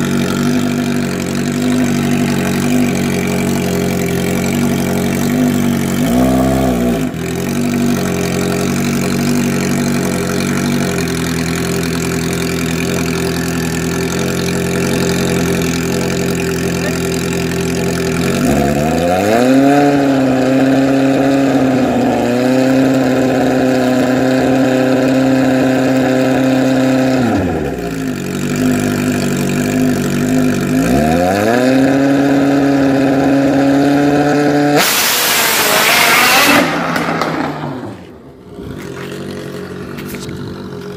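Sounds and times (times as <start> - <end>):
motorcycle engine revving: 0.0 - 40.9
motorcycle launching: 26.7 - 40.9.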